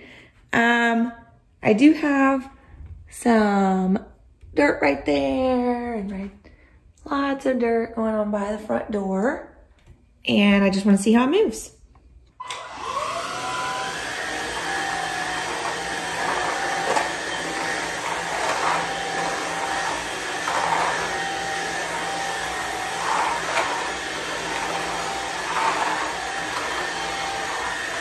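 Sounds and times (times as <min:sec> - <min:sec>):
vacuum motor whine: 0:12.4 - 0:28.0.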